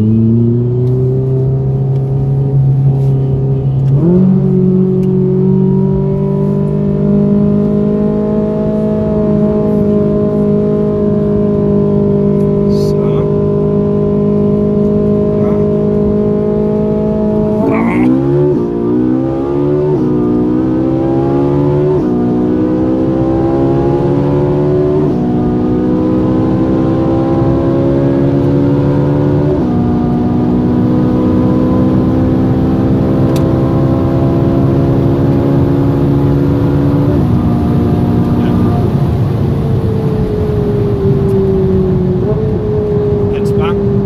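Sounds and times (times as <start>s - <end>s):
car engine accelerating: 0.0s - 44.0s.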